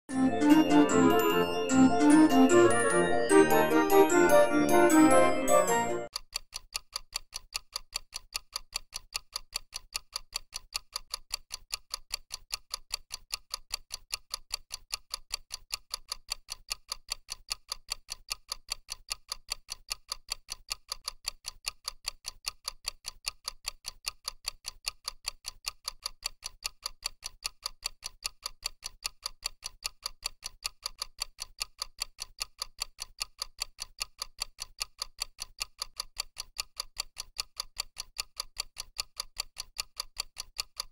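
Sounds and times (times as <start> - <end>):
clock ticking: 0.1 - 40.9.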